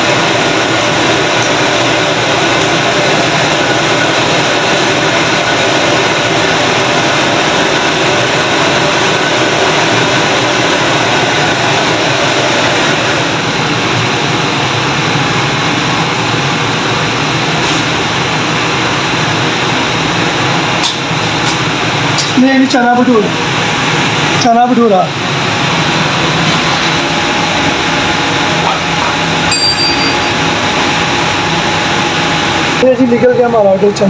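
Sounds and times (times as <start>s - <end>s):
gas burner roaring: 0.0s - 34.0s.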